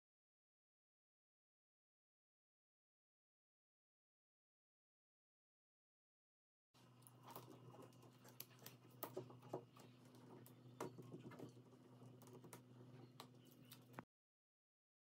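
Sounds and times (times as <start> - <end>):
fingers tapping and scratching: 6.9 - 14.0.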